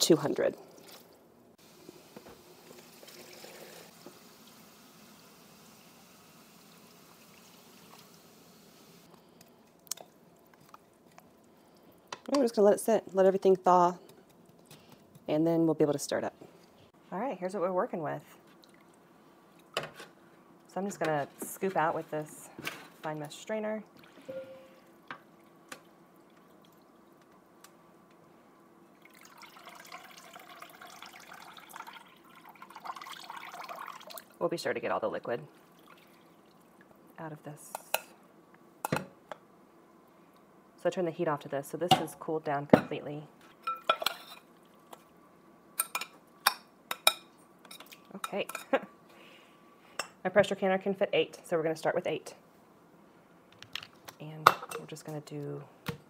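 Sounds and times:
water trickling: 0:23.9 - 0:27.2, 0:28.9 - 0:34.4, 0:35.5 - 0:37.0.

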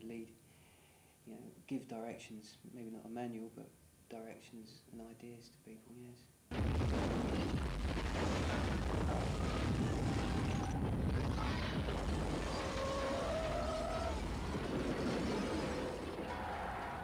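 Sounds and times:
explosion rumble: 0:06.5 - 0:16.4.

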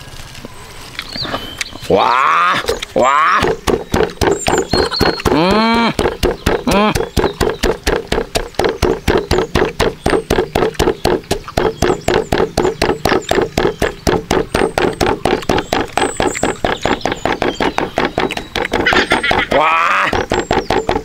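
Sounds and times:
wooden pestle pounding in mortar: 0:03.2 - 0:21.0.

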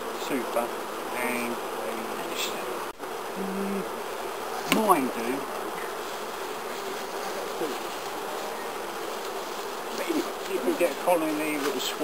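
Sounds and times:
bees buzzing: 0:00.0 - 0:12.0.

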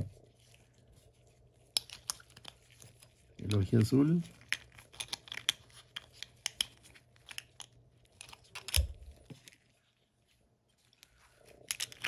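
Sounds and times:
plastic capsule clicks and crinkles: 0:01.7 - 0:09.6, 0:10.9 - 0:12.0.

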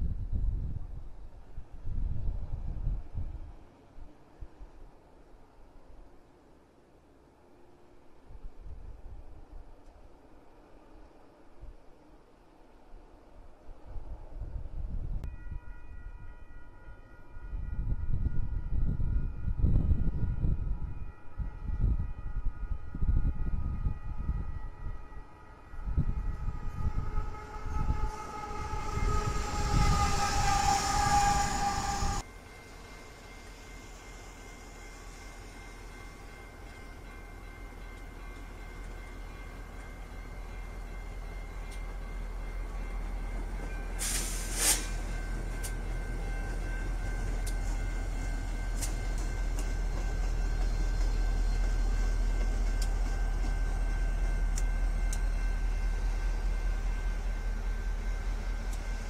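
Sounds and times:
freight train rolling past: 0:13.8 - 0:59.0
diesel locomotive rumbling: 0:23.0 - 0:59.0
high whine: 0:25.7 - 0:59.0.

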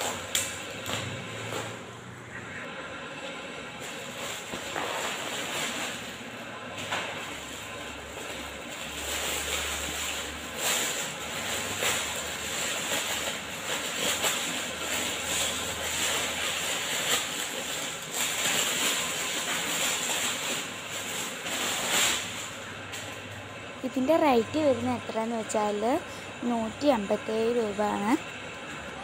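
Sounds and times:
plastic packaging crinkling: 0:07.3 - 0:23.3.

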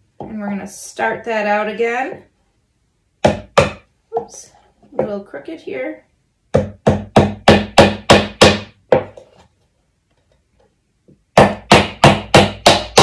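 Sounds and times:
hammer hitting nail into wood: 0:03.2 - 0:03.8, 0:06.5 - 0:09.1, 0:11.4 - 0:13.0.

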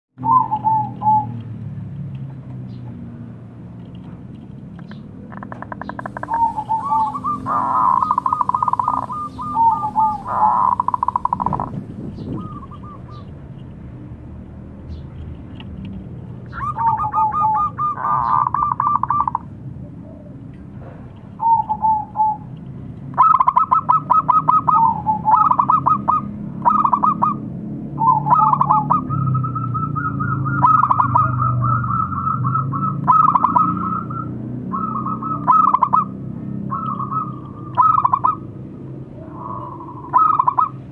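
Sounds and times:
dove cooing: 0:00.2 - 0:01.4, 0:05.4 - 0:13.3, 0:16.5 - 0:20.4, 0:21.4 - 0:22.5, 0:23.2 - 0:27.4, 0:28.0 - 0:38.5, 0:39.1 - 0:40.9.

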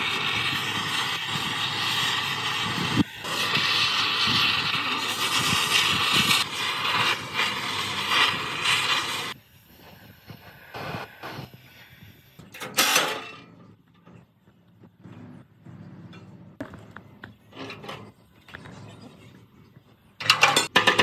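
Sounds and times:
power tool hissing: 0:00.0 - 0:13.0.

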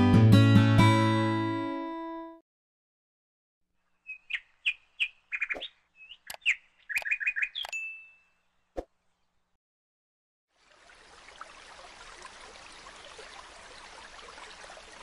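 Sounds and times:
bird chirping: 0:03.8 - 0:09.4
sharp clicks: 0:06.2 - 0:07.8.

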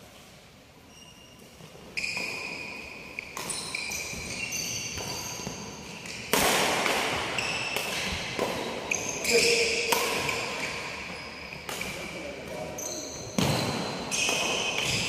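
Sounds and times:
shoes squeaking on floor: 0:00.8 - 0:06.3, 0:07.2 - 0:15.0
racket striking shuttlecock: 0:03.3 - 0:09.0, 0:09.8 - 0:10.5.

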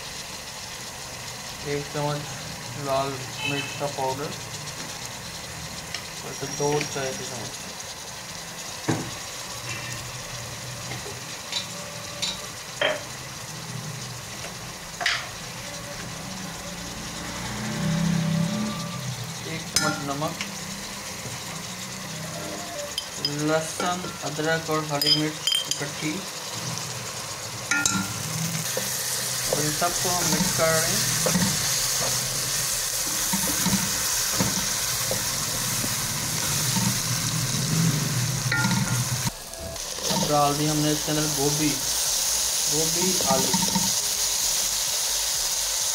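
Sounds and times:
onions sizzling in oil: 0:00.0 - 0:45.9
spatula scraping metal pot: 0:28.6 - 0:39.3, 0:40.0 - 0:40.7.

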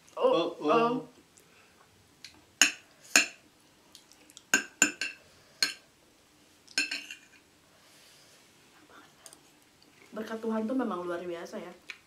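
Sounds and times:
cutlery clinking against plates: 0:02.6 - 0:03.4, 0:04.5 - 0:05.8, 0:06.7 - 0:07.4.

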